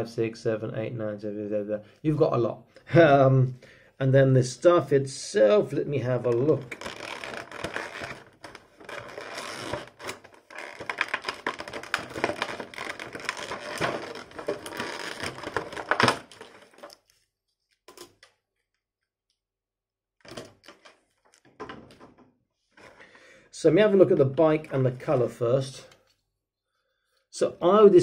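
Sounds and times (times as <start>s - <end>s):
plastic tray crinkling and crackling: 6.3s - 17.2s.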